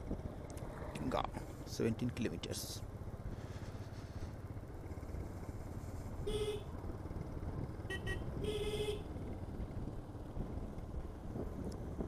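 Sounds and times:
motorcycle engine rumble: 0.0s - 12.0s
vehicle horn honking: 6.3s - 6.7s, 7.9s - 9.1s.

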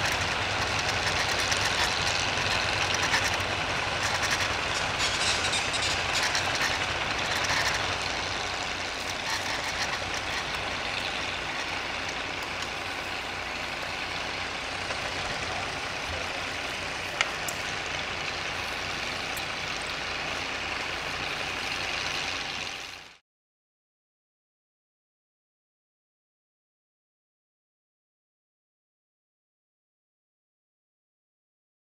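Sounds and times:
machinery clatter: 0.0s - 23.1s
steam engine hissing: 0.0s - 23.1s.

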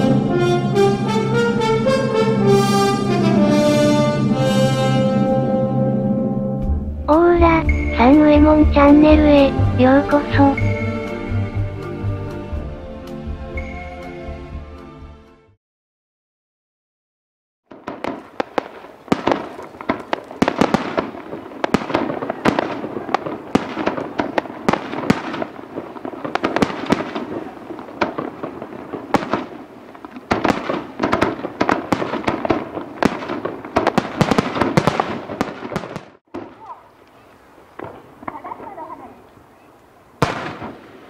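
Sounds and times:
fireworks bangs and crackles: 0.0s - 5.3s, 17.7s - 39.2s, 40.2s - 41.0s.

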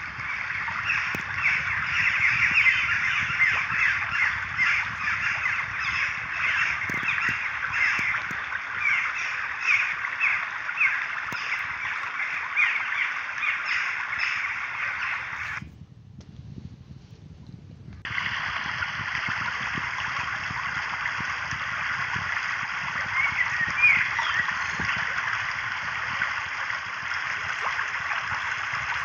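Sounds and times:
flock of birds calling: 0.0s - 15.6s, 22.8s - 29.0s.

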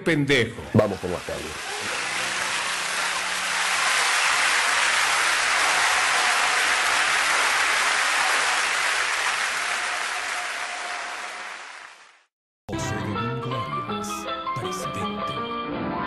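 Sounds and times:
audience applauding: 0.7s - 12.3s.

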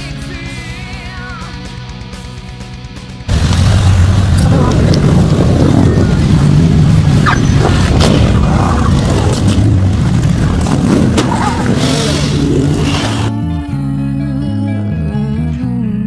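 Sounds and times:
motorcycles riding past: 3.3s - 13.3s.

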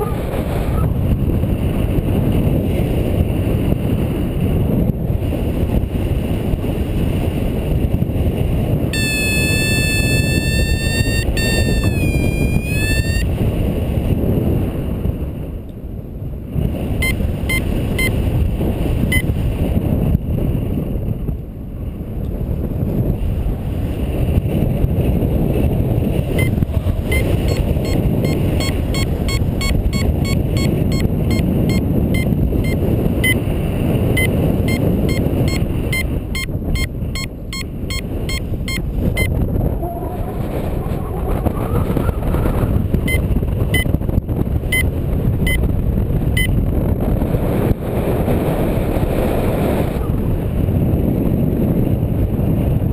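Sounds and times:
wind rushing over microphone: 0.0s - 52.9s
variometer beeping: 9.0s - 13.3s, 17.0s - 18.2s, 19.1s - 19.3s, 26.3s - 33.5s, 34.1s - 40.0s, 41.7s - 44.0s, 44.7s - 45.6s, 46.4s - 46.6s.

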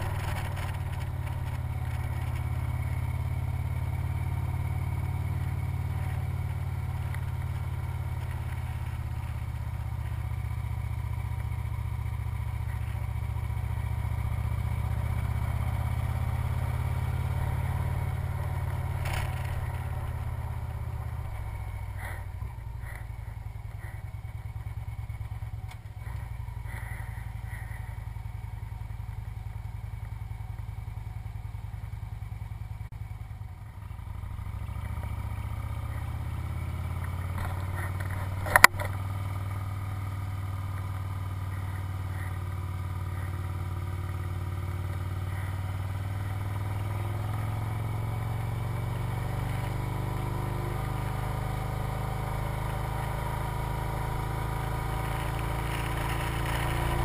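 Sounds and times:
motorcycle engine droning: 0.0s - 57.0s
sharp click: 37.4s - 39.0s.

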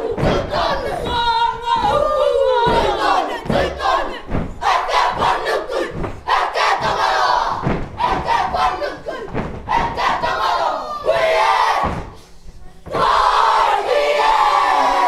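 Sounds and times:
feet stamping: 0.0s - 10.7s
children shouting chant in unison: 0.0s - 12.1s, 12.9s - 15.0s.

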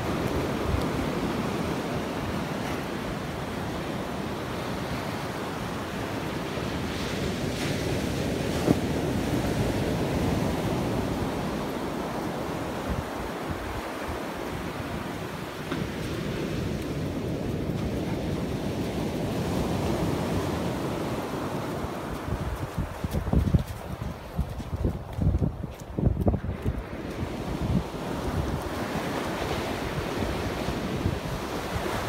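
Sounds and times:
ocean surf breaking on beach: 0.0s - 23.1s, 26.4s - 32.0s
wind buffeting microphone: 6.6s - 32.0s.

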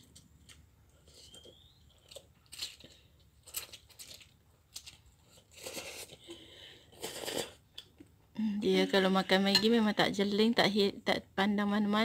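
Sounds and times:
child slurping noodles: 6.9s - 7.6s.

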